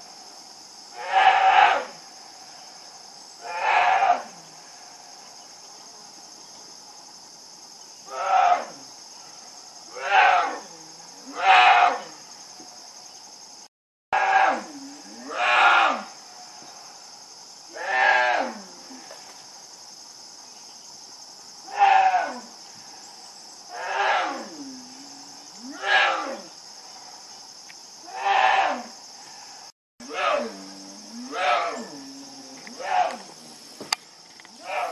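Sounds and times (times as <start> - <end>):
bear cub bellowing: 30.1 - 33.4.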